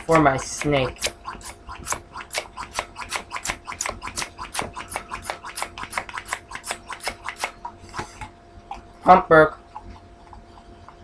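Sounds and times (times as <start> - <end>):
balloon hand pump strokes: 0.0 - 8.3.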